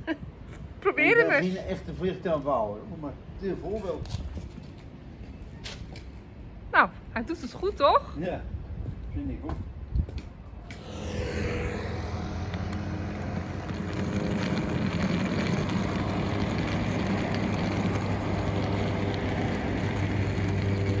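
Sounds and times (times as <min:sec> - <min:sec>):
road traffic: 0:10.2 - 0:21.0.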